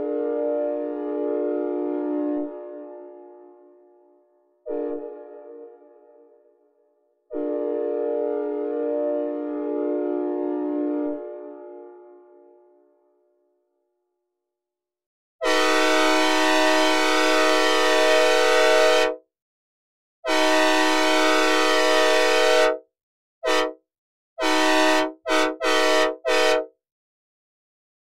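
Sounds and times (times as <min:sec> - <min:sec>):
locomotive air horn chord: 0:00.0 - 0:03.7, 0:04.6 - 0:06.2, 0:07.3 - 0:12.2, 0:15.4 - 0:19.2, 0:20.3 - 0:22.8, 0:23.4 - 0:23.8, 0:24.4 - 0:26.7.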